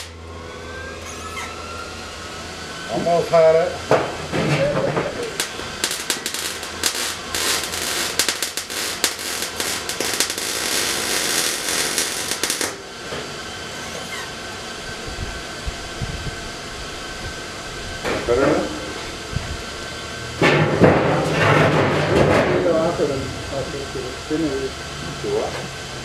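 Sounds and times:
arc welding crackle: 0.0 - 0.2, 5.0 - 13.0.

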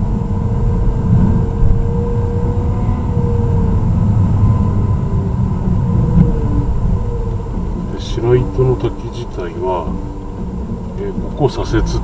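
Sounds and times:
car tyres and engine rumble: 0.0 - 12.0.

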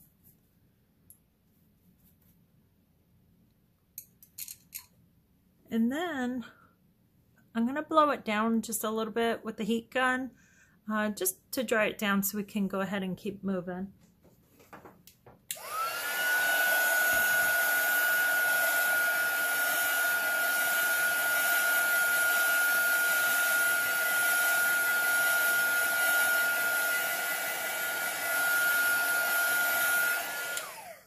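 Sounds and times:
heat gun whining: 15.5 - 31.0.

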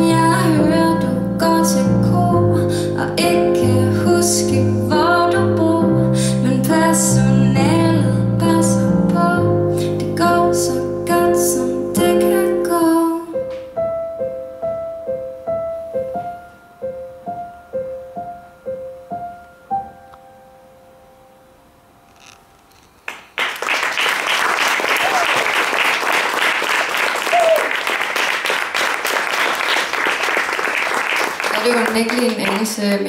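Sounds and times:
woman singing: 0.0 - 13.5
digital piano playing chords: 0.0 - 22.1.

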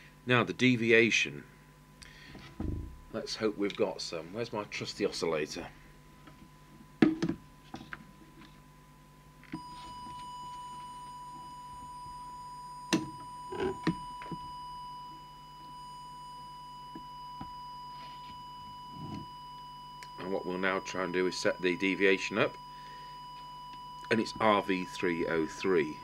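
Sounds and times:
short knocks: 2.6 - 3.2
steady test tone: 9.6 - 26.0.

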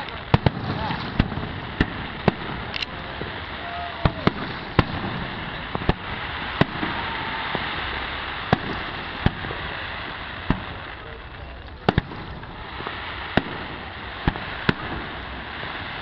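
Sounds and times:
firework shells bursting: 0.0 - 10.8, 11.4 - 16.0
background hiss: 0.0 - 16.0.

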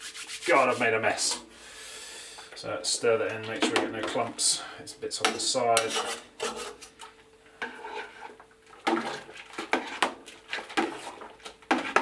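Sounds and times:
spoon scraping metal pot: 5.3 - 6.9, 7.6 - 10.1.

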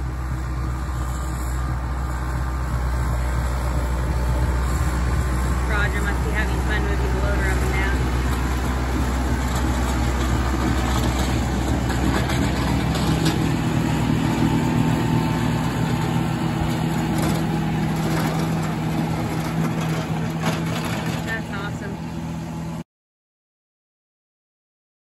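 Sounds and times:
tractor diesel engine running: 0.0 - 22.8.

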